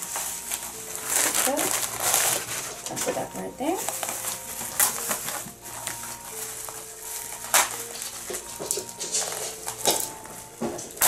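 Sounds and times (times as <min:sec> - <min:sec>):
plastic bag crinkling: 0:00.0 - 0:11.0
soft background music: 0:00.0 - 0:11.0.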